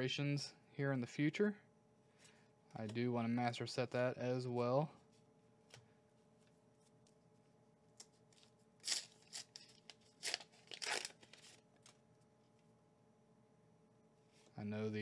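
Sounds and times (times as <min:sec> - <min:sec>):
wrapper tearing and crinkling: 0:08.4 - 0:12.0.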